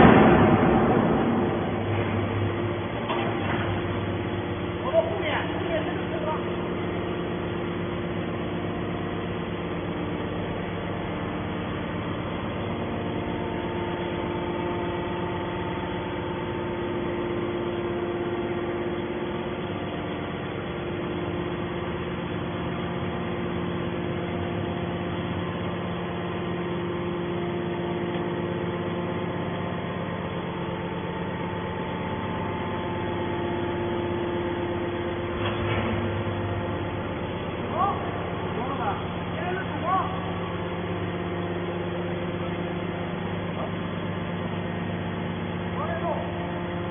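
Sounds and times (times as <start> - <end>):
higher tone over hum: 0.0 - 8.5
hydraulic pump motor humming: 0.0 - 46.9.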